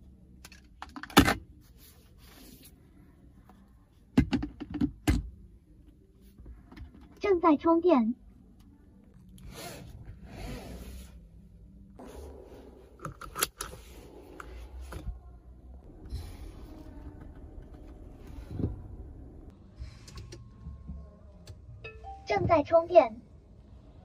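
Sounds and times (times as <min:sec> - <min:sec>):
seat belt webbing sliding: 0:09.3 - 0:11.1.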